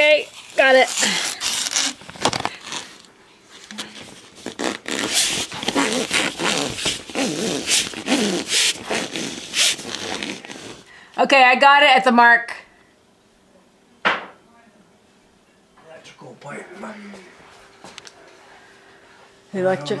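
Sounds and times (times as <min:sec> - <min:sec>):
copper pipe scraping and rustling: 0:00.0 - 0:10.8.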